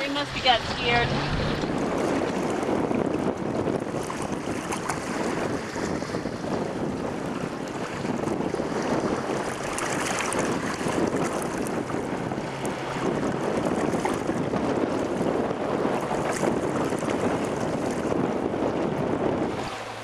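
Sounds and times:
choppy water slapping hull: 0:00.0 - 0:20.0
wind buffeting microphone: 0:00.0 - 0:20.0.

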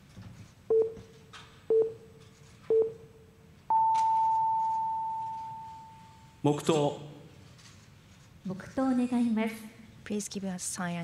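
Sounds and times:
time signal pips: 0:03.7 - 0:06.2.

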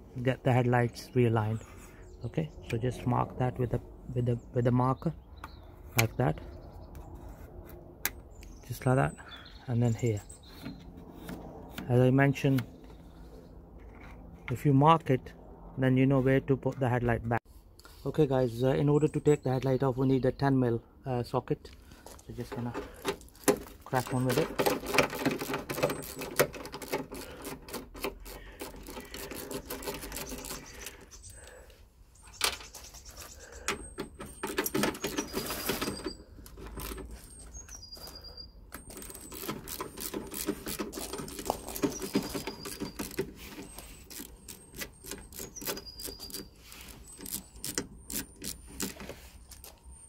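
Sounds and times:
ratchet clicking: 0:24.7 - 0:30.7, 0:38.9 - 0:49.0.

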